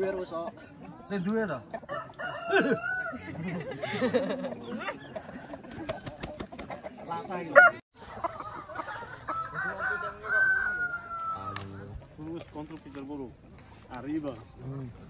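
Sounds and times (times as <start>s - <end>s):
roosters crowing and clucking: 0.0s - 13.9s
people's voices: 0.0s - 15.0s.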